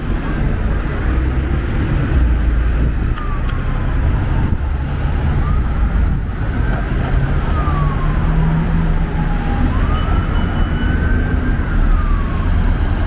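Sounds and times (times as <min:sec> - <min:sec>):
city traffic rumble: 0:00.0 - 0:13.0
emergency siren wailing: 0:02.6 - 0:13.0.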